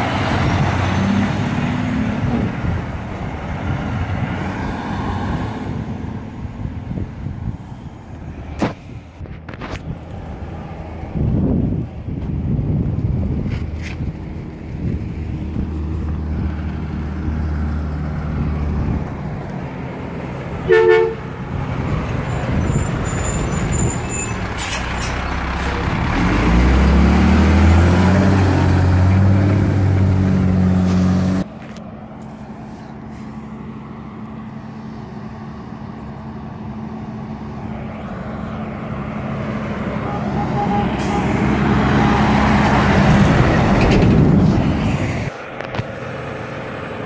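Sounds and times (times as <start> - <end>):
diesel truck engine: 0.0 - 47.0
truck horn toot: 20.6 - 21.3, 40.0 - 42.3.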